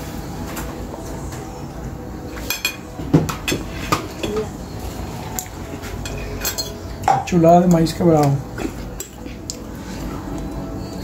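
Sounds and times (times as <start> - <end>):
fork clinking: 6.0 - 7.3.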